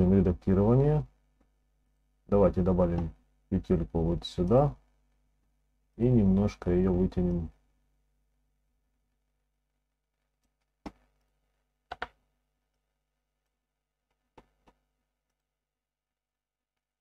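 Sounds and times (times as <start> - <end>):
computer clicks: 11.9 - 12.2.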